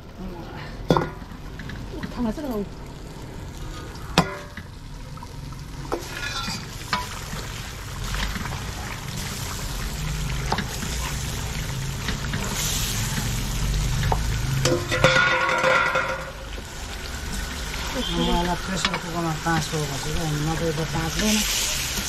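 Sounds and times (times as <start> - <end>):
meat sizzling in a pot: 0.9 - 22.0.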